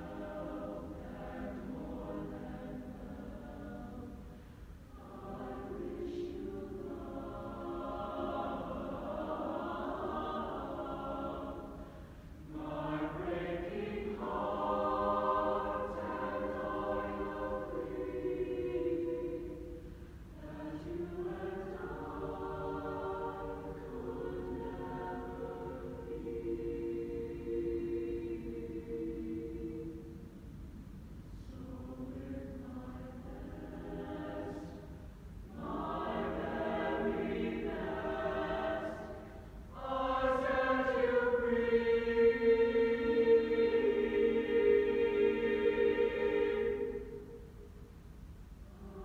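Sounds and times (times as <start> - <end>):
mixed choir singing slow song: 0.0 - 49.0.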